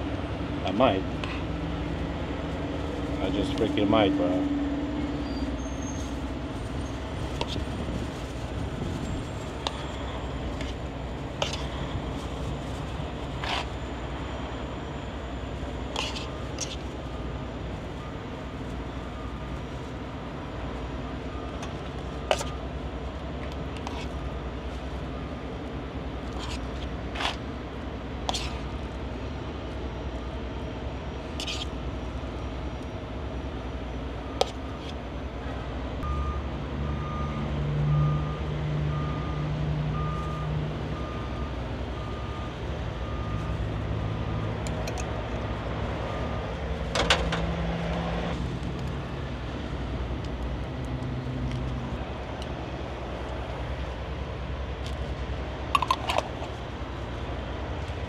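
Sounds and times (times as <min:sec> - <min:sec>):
trucks idling: 0:00.0 - 0:58.0
truck reversing alarm beeps: 0:00.3 - 0:26.4, 0:27.8 - 0:35.4, 0:36.0 - 0:48.3.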